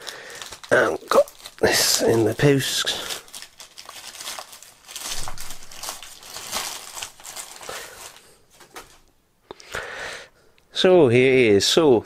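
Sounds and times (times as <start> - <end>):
plastic mailing bag crinkling: 0.0 - 9.1.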